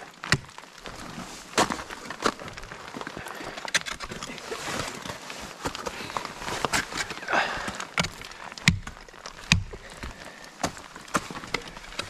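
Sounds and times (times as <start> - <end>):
ice axe striking ice: 0.0 - 0.6, 6.6 - 12.0.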